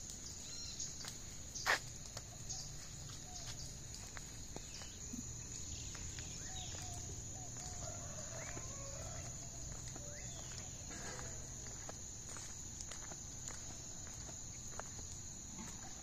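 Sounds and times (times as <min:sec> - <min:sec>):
insect drone: 0:00.0 - 0:16.0
birds chirping: 0:00.2 - 0:11.9.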